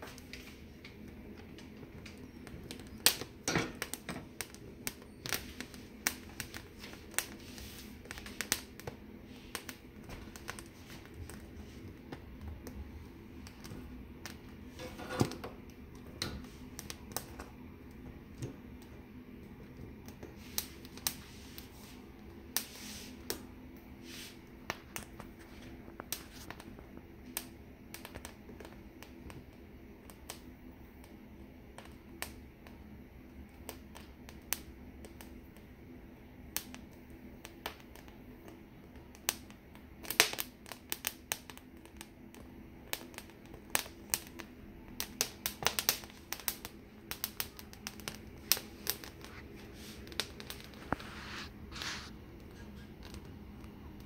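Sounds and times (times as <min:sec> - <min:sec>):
pepper skins crackling and popping: 0:00.0 - 0:23.5, 0:24.5 - 0:35.7, 0:36.4 - 0:54.0
steady low hum: 0:00.0 - 0:40.0.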